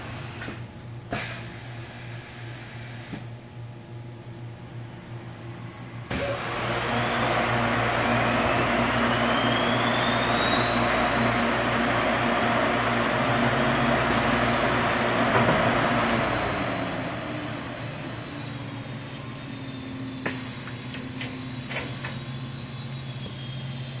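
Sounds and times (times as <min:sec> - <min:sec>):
machine air rush with whine: 0:00.0 - 0:24.0
machine hum: 0:03.4 - 0:24.0.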